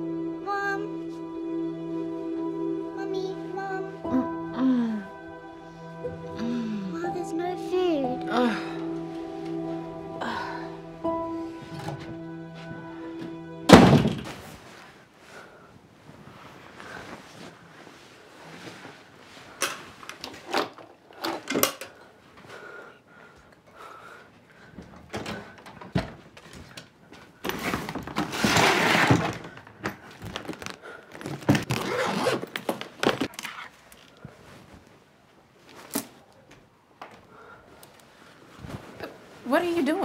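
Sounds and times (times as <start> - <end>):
clothes being handled: 14.2 - 20.7, 26.2 - 36.7, 37.8 - 40.0
suitcase scraping rustle: 27.6 - 29.5.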